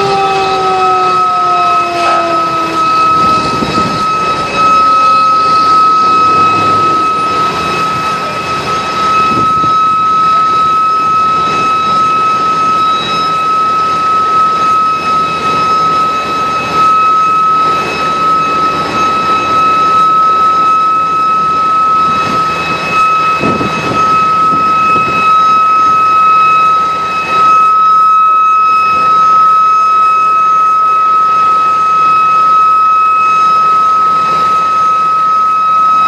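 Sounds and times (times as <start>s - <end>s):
heavy truck engine running: 2.4s - 9.7s.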